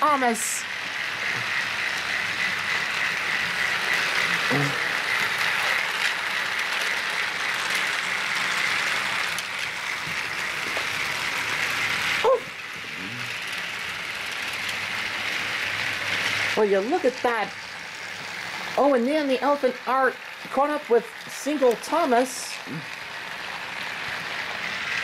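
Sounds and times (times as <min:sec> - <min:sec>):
toy train motors whirring: 0:00.0 - 0:25.0
wheels rattling over rails: 0:00.0 - 0:25.0.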